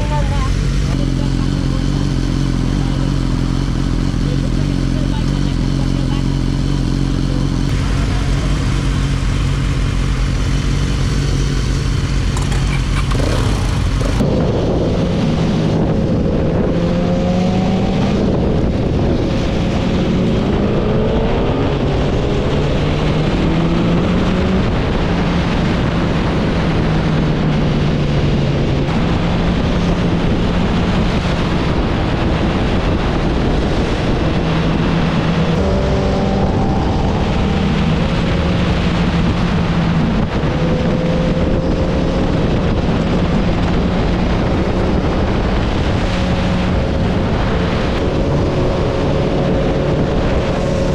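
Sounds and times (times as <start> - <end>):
motorcycle engines idling: 0.0 - 14.2
motorcycle accelerating through gears: 0.0 - 50.9.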